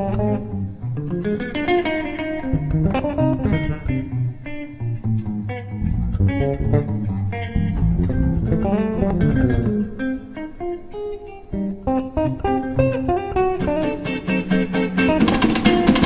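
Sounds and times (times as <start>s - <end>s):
electric bass plucked: 0.0s - 16.0s
electric guitar notes: 0.0s - 16.0s
jazz fusion band playing: 12.5s - 16.0s.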